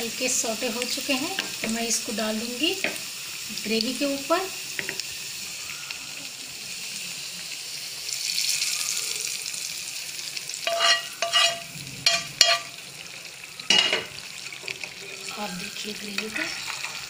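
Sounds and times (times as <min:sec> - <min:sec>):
hot oil sizzling: 0:00.0 - 0:17.0
spoon scraping pan: 0:10.6 - 0:12.8
spoon clinking against pan: 0:10.7 - 0:12.7.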